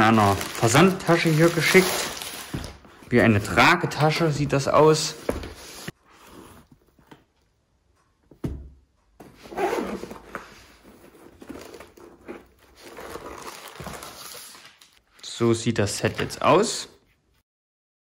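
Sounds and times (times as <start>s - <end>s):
bag rustling: 0.0s - 3.6s, 9.2s - 14.5s.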